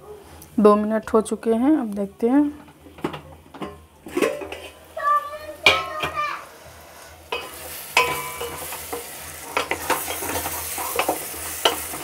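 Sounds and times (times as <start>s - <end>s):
food sizzling in a pot: 0.2s - 12.0s
ladle scraping and clinking on pot: 2.6s - 4.9s, 7.3s - 12.0s.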